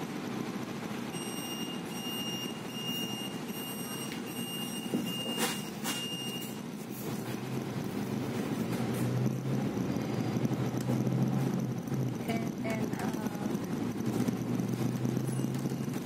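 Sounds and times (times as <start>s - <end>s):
bus engine idling: 0.0s - 16.0s
high electronic beeping: 1.1s - 6.6s, 9.3s - 16.0s.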